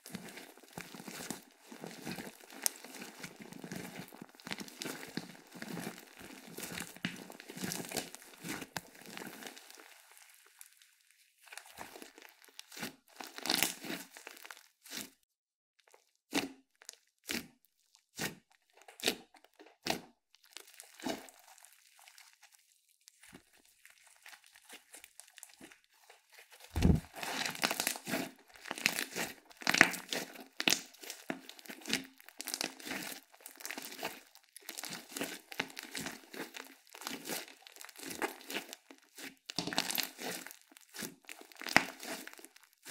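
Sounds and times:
slime crackling and popping: 0.0s - 15.2s, 15.9s - 42.9s
low thud: 26.8s - 27.1s.

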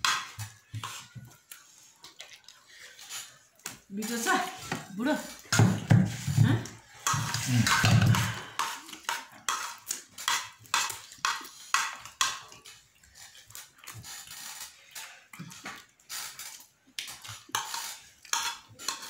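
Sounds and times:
spoon scraping rice off plates: 0.0s - 19.0s.

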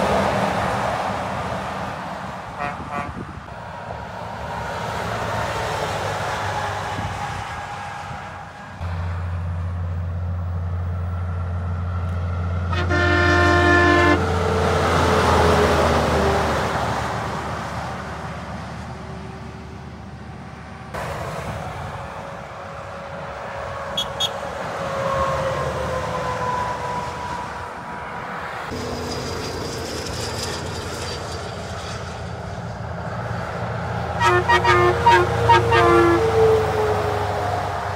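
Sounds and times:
heavy truck passing: 0.0s - 37.9s
truck whine: 0.0s - 37.9s
truck air horn blast: 2.5s - 3.4s, 12.7s - 14.8s, 23.8s - 27.4s, 34.1s - 37.2s.

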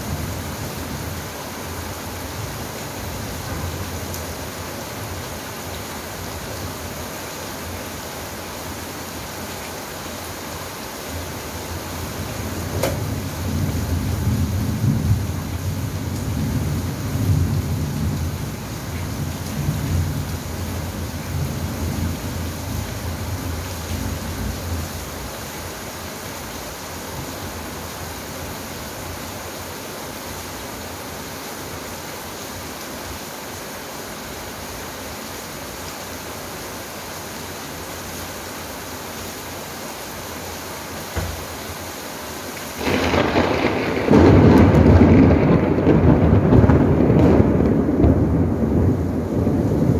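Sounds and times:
rain falling steadily: 0.0s - 49.9s
low rumbling thunder: 12.6s - 22.4s, 42.8s - 49.9s
loud thunderclap: 42.8s - 49.9s.

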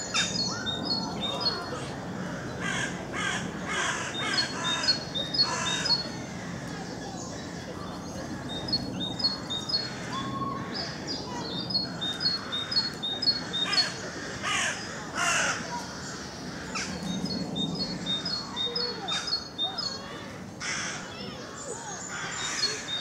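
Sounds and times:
rooks cawing: 1.5s - 7.7s, 11.9s - 17.0s, 20.6s - 23.0s.

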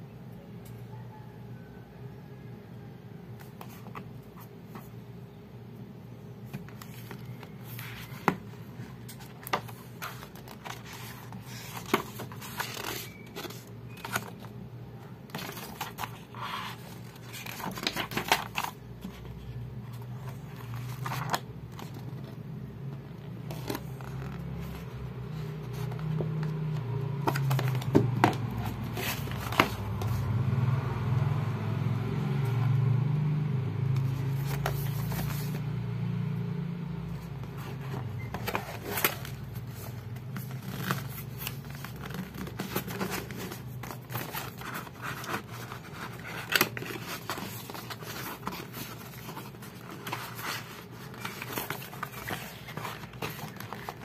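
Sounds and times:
book pages rustling and turning: 3.3s - 5.2s, 6.2s - 31.4s, 33.8s - 54.0s
paper scraping: 6.5s - 14.5s, 15.2s - 22.4s, 34.0s - 35.6s, 37.2s - 54.0s.

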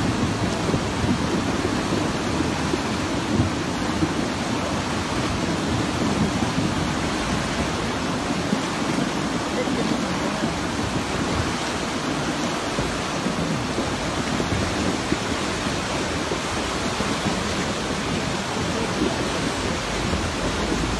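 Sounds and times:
rushing churning water: 0.0s - 20.9s.

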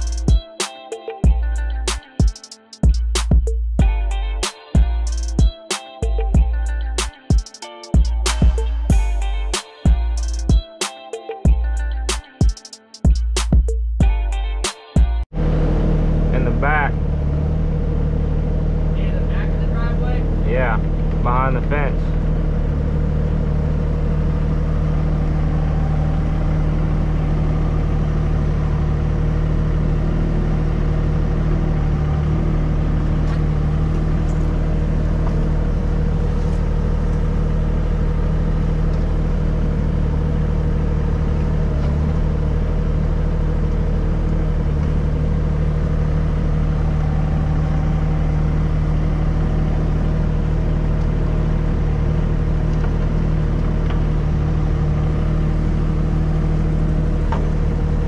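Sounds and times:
excavator diesel engine running: 0.0s - 0.4s, 15.3s - 58.0s.

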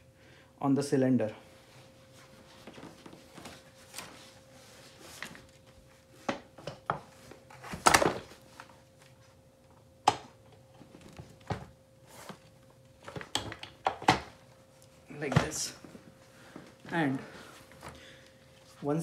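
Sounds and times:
office chair knocks and clunks: 15.2s - 15.9s.

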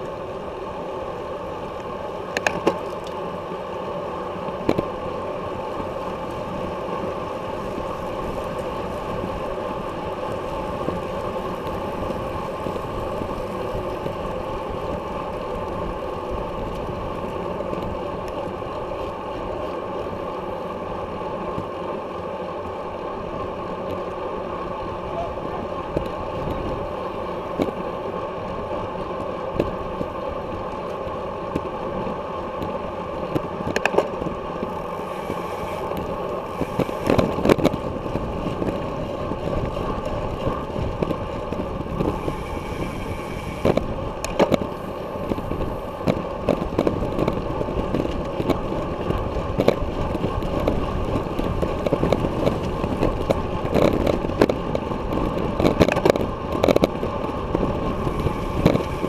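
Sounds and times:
road noise: 0.0s - 59.0s
wind rushing over microphone: 32.6s - 59.0s.

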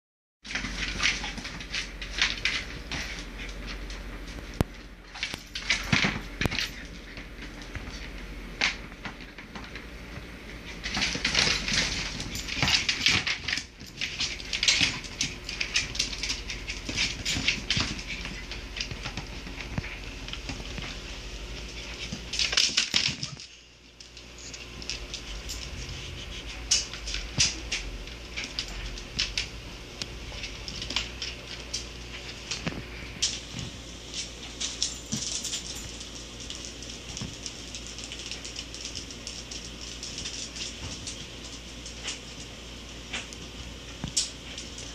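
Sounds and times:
dog claws clicking on vinyl floor: 0.5s - 42.5s.

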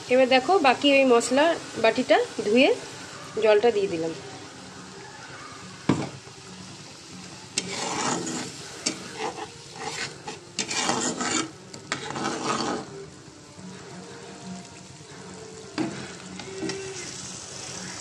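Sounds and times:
paste sizzling: 0.0s - 18.0s
metal spatula scraping a pan: 7.5s - 13.0s, 15.8s - 17.4s.

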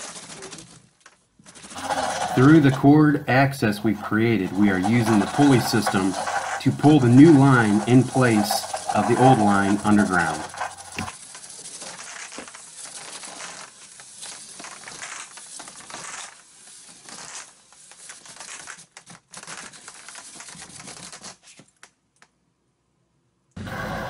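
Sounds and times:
plastic pipe scraping against wall: 1.6s - 11.1s.

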